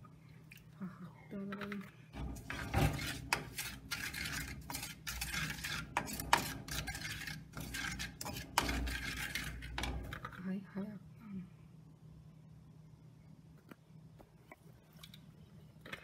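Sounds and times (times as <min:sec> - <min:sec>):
spoon scraping clay pot: 0:02.2 - 0:10.4.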